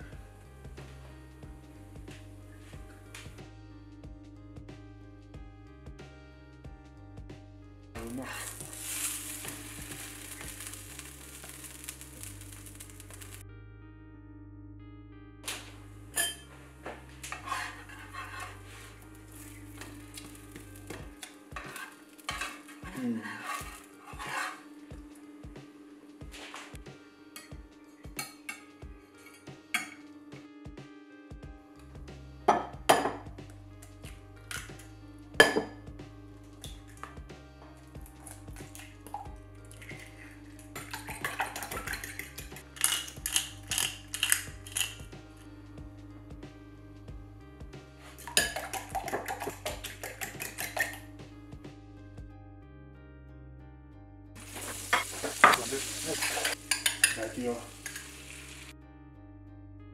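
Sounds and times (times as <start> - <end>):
background music: 0.0 - 59.9
faint frying sizzle: 8.0 - 13.4, 17.7 - 26.8, 54.4 - 58.7
metal spatula scraping a pan: 8.1 - 13.4, 17.2 - 20.2, 21.2 - 24.8, 54.4 - 58.6
fork whisking eggs in glass bowl: 40.8 - 44.2, 48.3 - 51.0.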